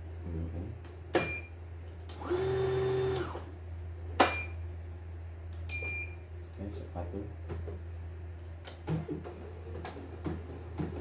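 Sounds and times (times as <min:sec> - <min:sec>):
motor whirring: 0:02.2 - 0:03.5.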